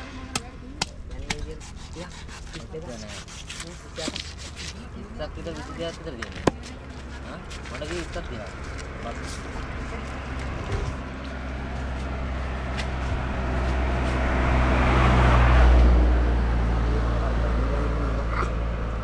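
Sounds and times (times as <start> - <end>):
vehicle passing by: 6.8 - 19.0.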